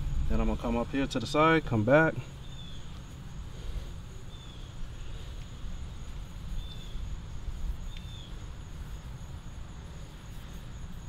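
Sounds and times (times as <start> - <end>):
high insect drone: 0.0 - 11.0
steady low rumble: 0.0 - 11.0
bird chirps: 2.3 - 3.0, 4.3 - 5.2, 6.5 - 7.1, 7.8 - 8.4.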